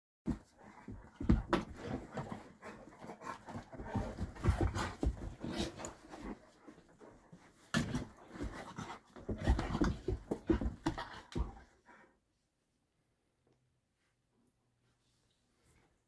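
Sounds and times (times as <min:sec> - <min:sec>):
large dogs panting: 0:00.4 - 0:07.6.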